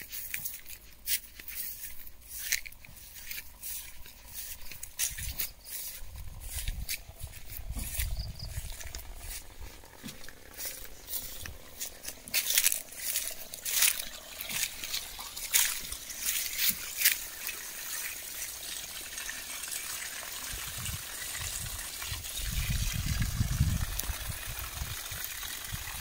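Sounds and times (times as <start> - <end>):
footsteps rustling through grass: 0.0 - 18.4
low rumble: 6.0 - 13.5.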